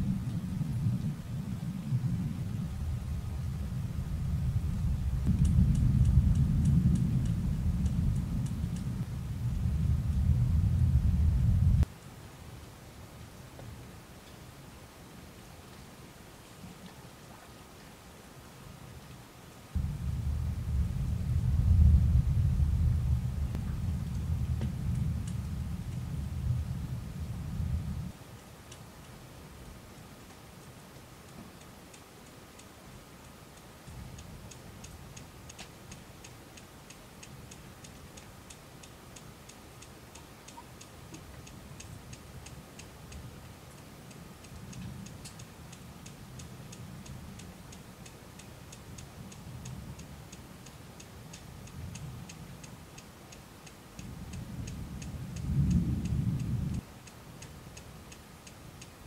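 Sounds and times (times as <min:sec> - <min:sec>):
distant thunder rumbling: 0:00.0 - 0:11.9, 0:19.8 - 0:28.2
faint even ticking: 0:04.1 - 0:11.9, 0:31.5 - 0:59.0.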